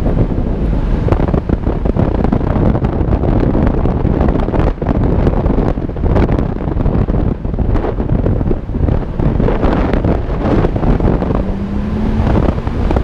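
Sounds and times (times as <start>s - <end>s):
choppy wind buffeting microphone: 0.0s - 13.0s
vehicle engine running: 6.8s - 13.0s.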